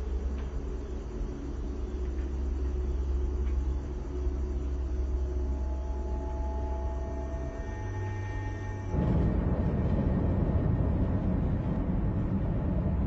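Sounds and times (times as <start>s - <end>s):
sustained music tones: 3.9s - 11.7s
vehicle engine rumble: 8.9s - 13.0s.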